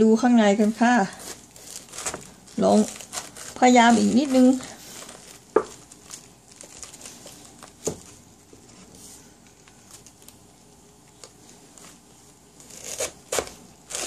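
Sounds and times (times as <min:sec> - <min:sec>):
knife cutting through cabbage: 0:01.1 - 0:05.2, 0:12.6 - 0:14.0.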